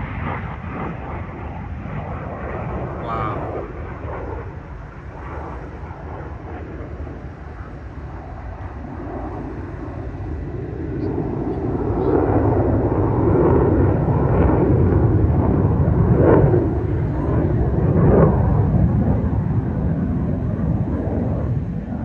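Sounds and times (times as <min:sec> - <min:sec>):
fighter jet flying past: 0:00.0 - 0:22.0.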